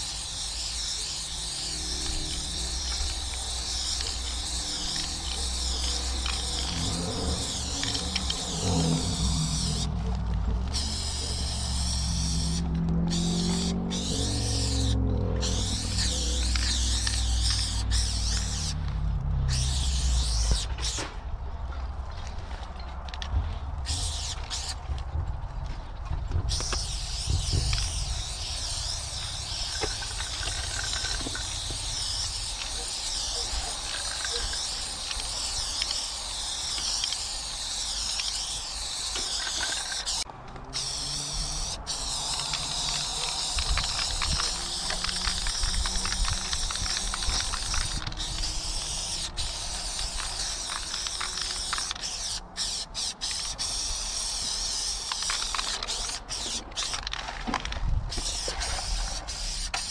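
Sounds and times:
spray paint can hissing: 0:00.0 - 0:21.2, 0:23.8 - 0:25.0, 0:26.4 - 0:59.9
low rumble: 0:01.3 - 0:23.9.

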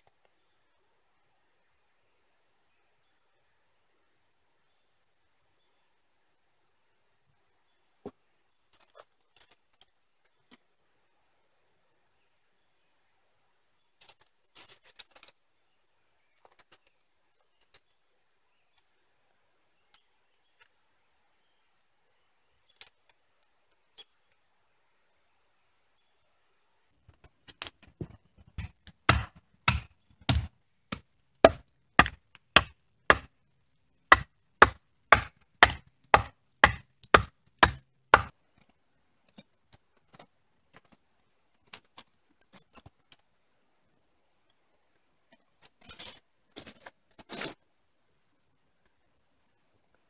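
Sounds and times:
scraping rustle: 0:14.0 - 0:15.4
machete chopping wood: 0:28.6 - 0:33.3, 0:34.1 - 0:38.3.

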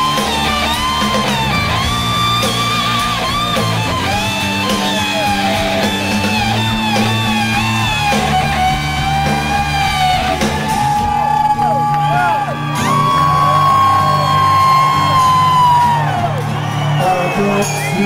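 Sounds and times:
electric guitar lead notes: 0:00.0 - 0:16.2
live rock band: 0:00.0 - 0:18.0.

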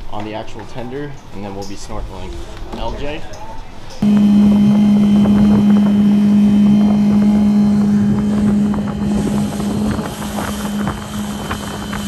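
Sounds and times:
boat motor humming: 0:04.0 - 0:12.0.

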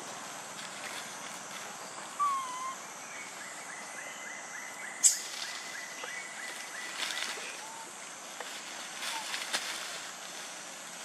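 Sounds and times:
thin repeating chirping call: 0:02.2 - 0:07.3.

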